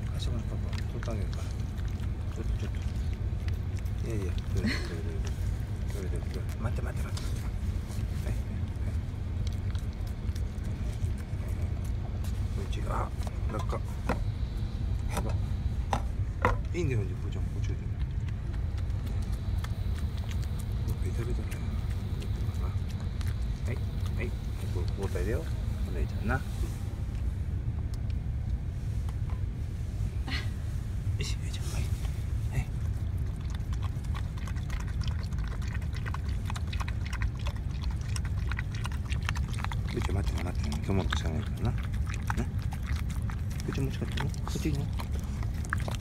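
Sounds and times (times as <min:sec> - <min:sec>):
sharp wet clicks: 0:00.0 - 0:15.5, 0:16.6 - 0:26.1, 0:32.0 - 0:46.0
dog licking and chewing: 0:00.0 - 0:29.6, 0:31.2 - 0:46.0
steady low rumble: 0:00.0 - 0:46.0.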